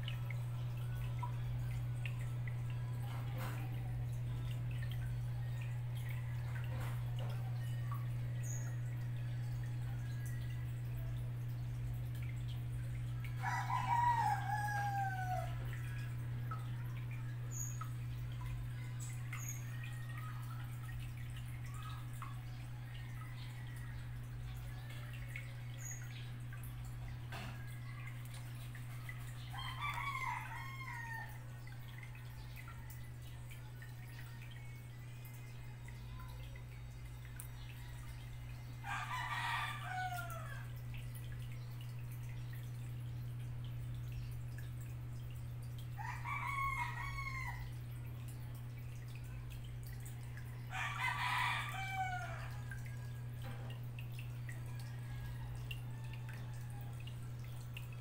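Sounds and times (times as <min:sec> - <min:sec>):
aquarium filter pump humming: 0:00.0 - 0:58.0
water trickling and dripping: 0:00.0 - 0:58.0
rooster crowing: 0:13.4 - 0:15.7, 0:29.5 - 0:31.6, 0:38.8 - 0:40.8, 0:46.0 - 0:47.8, 0:50.7 - 0:53.2, 0:54.6 - 0:57.0.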